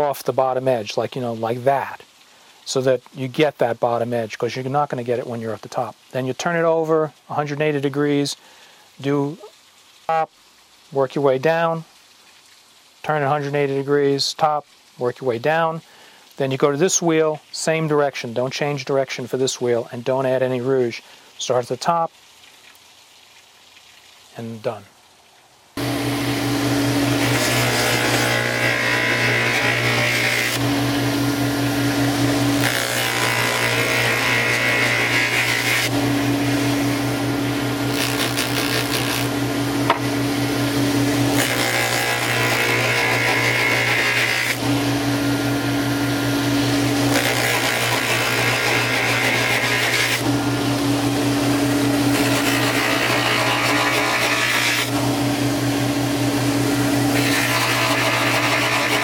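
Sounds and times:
buffing machine motor hum: 25.8 - 59.0
plate polished on buffing wheel: 25.8 - 59.0.

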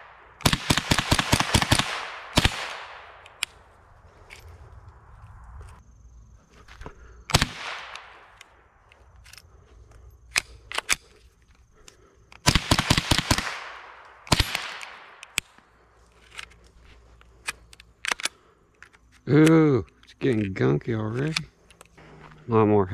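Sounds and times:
rifle shots: 0.0 - 3.4, 7.3 - 8.4, 12.4 - 15.6
faint sharp cracks: 7.3 - 9.4.

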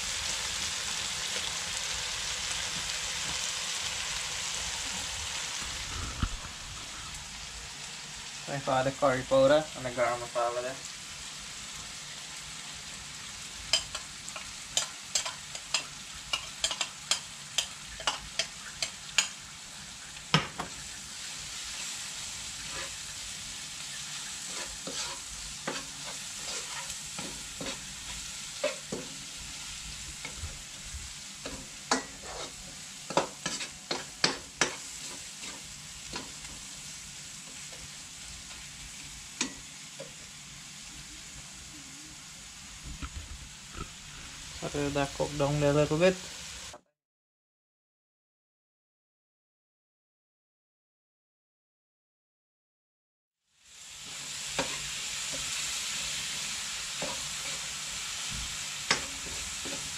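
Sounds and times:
spices sizzling in oil: 0.0 - 46.8, 53.5 - 59.9
metal spoon clinking against pan: 13.7 - 19.4.

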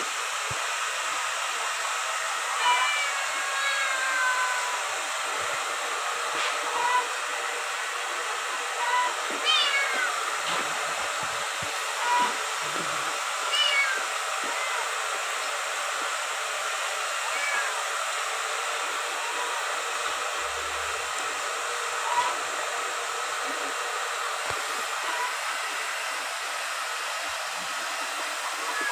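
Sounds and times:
kitten mewing: 12.0 - 14.8, 22.0 - 22.4.

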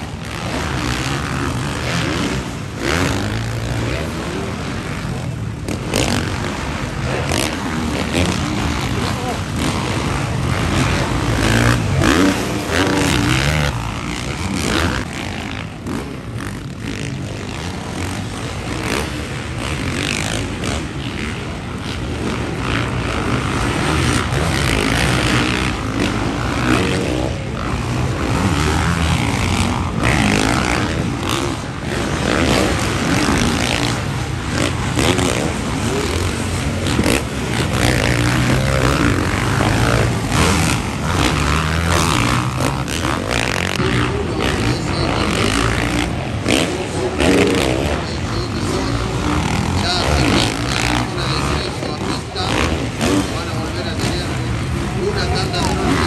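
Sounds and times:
dirt bike engines revving: 0.0 - 56.0.

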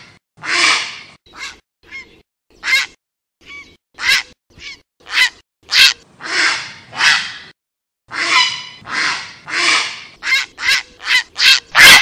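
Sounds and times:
heron harsh calls: 0.4 - 2.0, 4.0 - 7.5, 8.1 - 12.0.

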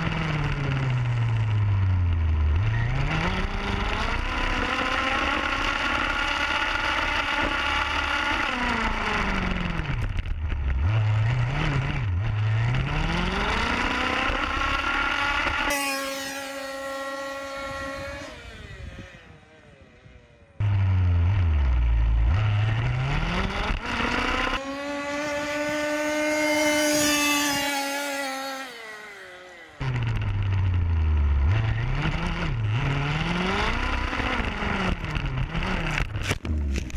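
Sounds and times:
rc car engine revving: 2.5 - 36.9.

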